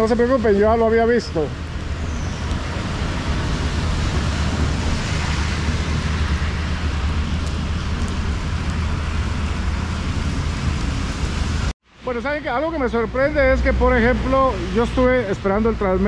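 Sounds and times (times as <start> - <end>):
heavy rain hissing: 0.0 - 11.7
traffic on wet road: 0.0 - 16.0.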